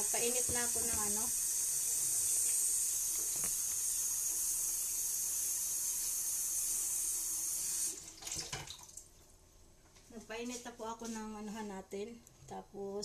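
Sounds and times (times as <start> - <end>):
gas stove burner hissing: 0.0 - 8.0.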